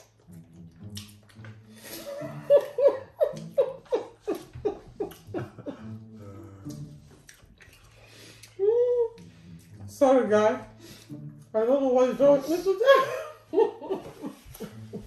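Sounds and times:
woman laughing: 2.0 - 6.0, 12.6 - 15.0.

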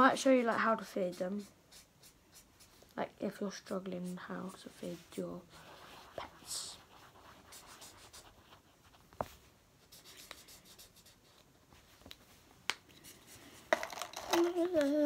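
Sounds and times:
marker pens scratching paper: 0.0 - 9.0, 9.8 - 11.5
girl humming: 14.3 - 15.0.

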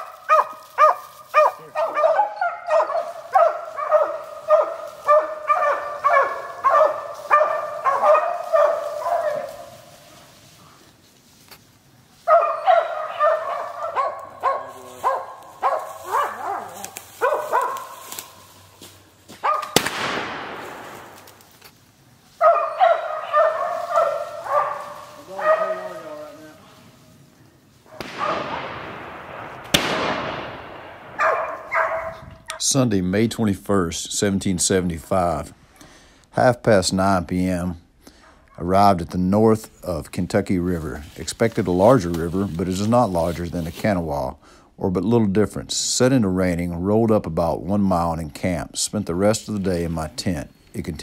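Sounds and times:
dog barking: 0.0 - 9.9, 12.2 - 18.0, 19.4 - 19.8, 22.4 - 26.4, 31.2 - 32.6
rifle shot: 19.5 - 21.6, 27.9 - 32.0.

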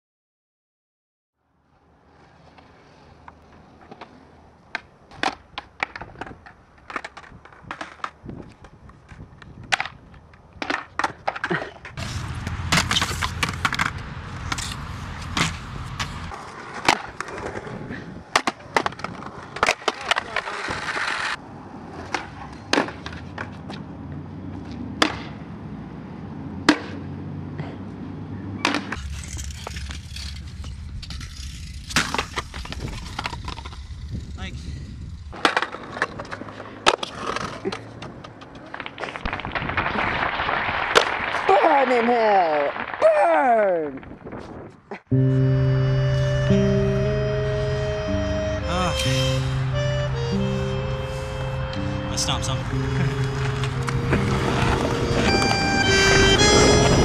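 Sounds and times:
skateboard wheels rolling on concrete: 1.6 - 57.0
skateboard clacks: 3.3 - 23.8, 25.0 - 25.4, 35.3 - 40.1, 52.8 - 57.0.

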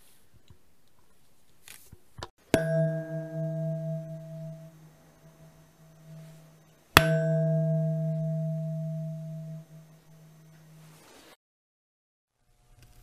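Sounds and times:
knife blade ringing: 2.5 - 10.8.

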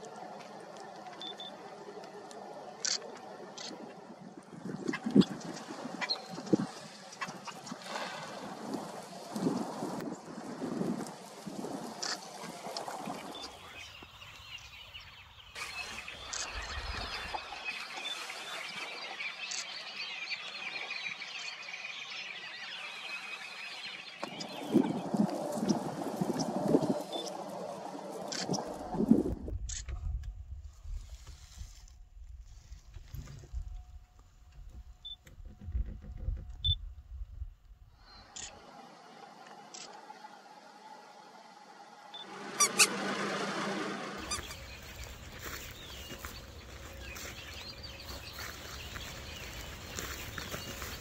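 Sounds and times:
low wind rumble: 0.0 - 18.4, 24.2 - 39.2, 40.0 - 51.0
steady outdoor hiss: 0.0 - 29.9, 37.6 - 51.0
small birds chirping: 0.8 - 10.3, 11.0 - 28.8, 44.2 - 51.0
camera autofocus beeps: 1.2 - 1.5, 16.3 - 16.5.

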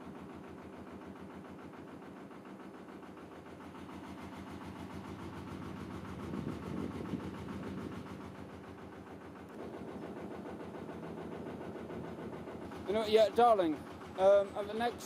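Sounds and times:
boat diesel engine running: 0.0 - 15.0.

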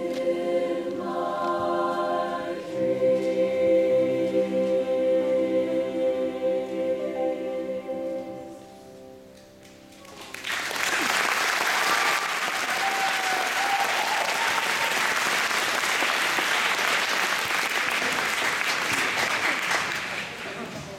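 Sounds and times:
choir holding final chord: 0.0 - 8.8
audience applause: 10.0 - 20.9.

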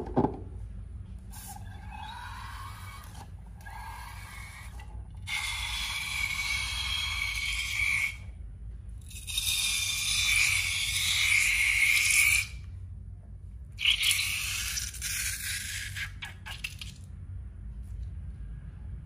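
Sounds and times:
slime squealing through balloon neck: 1.4 - 8.2, 9.1 - 12.6, 13.8 - 16.9.

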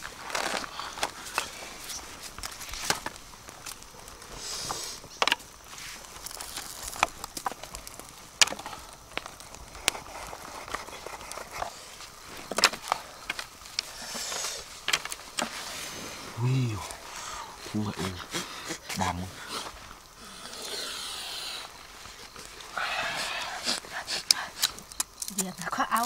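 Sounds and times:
banana leaves rustling: 0.0 - 26.0
bamboo slats clicking and knocking: 5.2 - 5.5, 8.4 - 9.4, 14.8 - 15.5.

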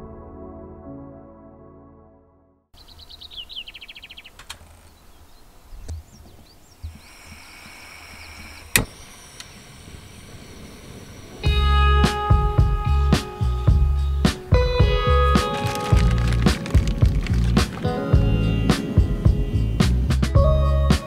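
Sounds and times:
soft ambient music: 11.4 - 21.0.

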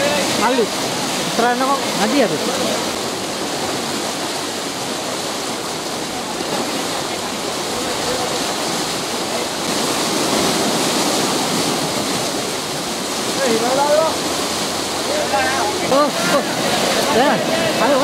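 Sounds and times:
water rushing through sluice gate: 0.0 - 18.0.

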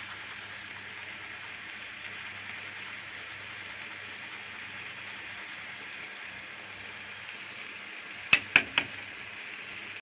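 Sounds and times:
food sizzling in a frying pan: 0.0 - 10.0
metal utensil knocking on pan: 8.3 - 9.0.

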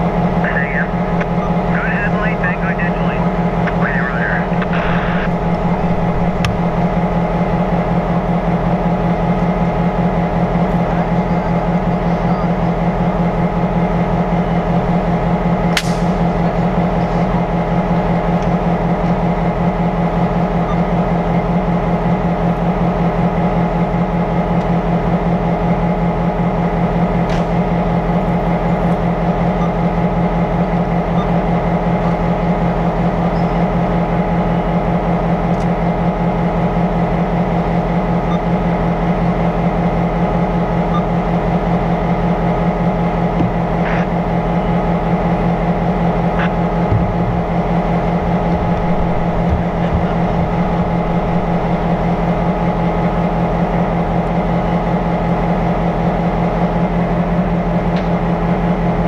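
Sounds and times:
diesel locomotive engines idling: 0.0 - 59.0
sharp clicks: 15.8 - 16.1.

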